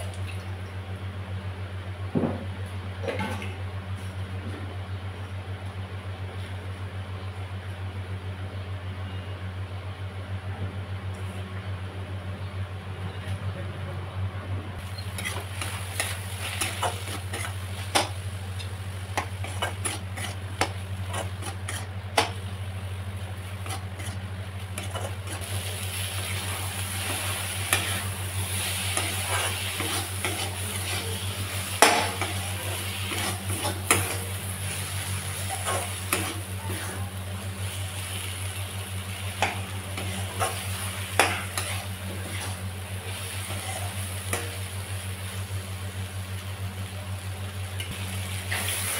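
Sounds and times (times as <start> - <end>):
steady low hum: 0.0 - 48.9
food sizzling in a pan: 14.8 - 48.9
spatula scraping a pan: 15.0 - 18.2, 19.1 - 22.4, 23.4 - 37.1, 39.3 - 44.6.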